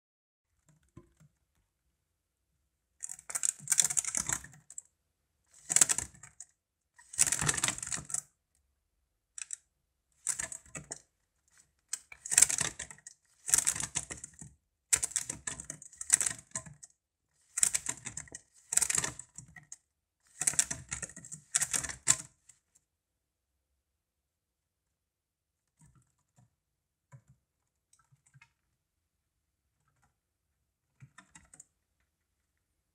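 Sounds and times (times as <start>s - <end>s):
claws clicking on plastic bottle: 11.9s - 19.6s.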